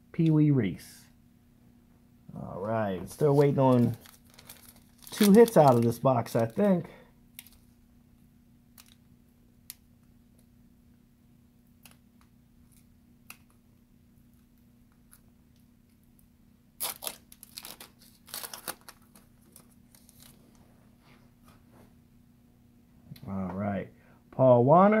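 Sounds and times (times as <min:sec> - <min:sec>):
rustling scrapes of packaging: 0:03.1 - 0:06.6.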